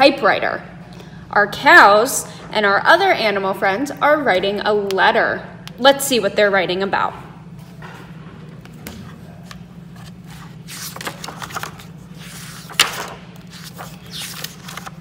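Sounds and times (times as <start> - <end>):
steady low hum: 0.0 - 15.0
book pages rustling: 8.7 - 15.0.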